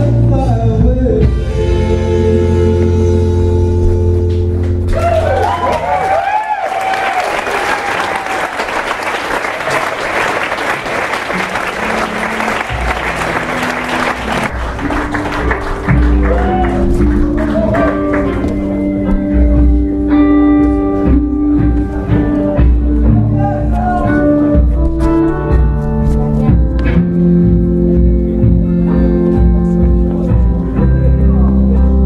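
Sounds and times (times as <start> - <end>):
guitar playing: 0.0 - 5.4, 10.7 - 32.0
low sustained bass notes: 0.0 - 5.4, 11.6 - 32.0
audience applauding: 4.9 - 19.1.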